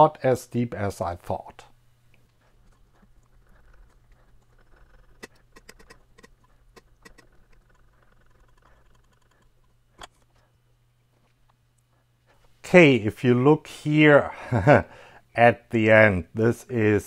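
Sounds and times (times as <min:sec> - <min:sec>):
steady low hum: 0:00.0 - 0:17.0
metal-on-metal scraping: 0:04.7 - 0:10.3.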